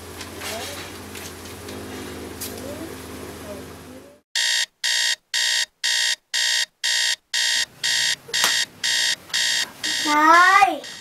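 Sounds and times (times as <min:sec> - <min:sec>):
alarm clock beeping: 0:04.4 - 0:11.0.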